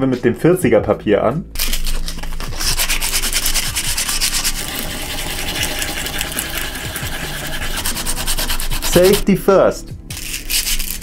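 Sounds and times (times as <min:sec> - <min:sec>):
sandpaper rubbing on wood: 0:01.6 - 0:09.3, 0:10.1 - 0:11.0.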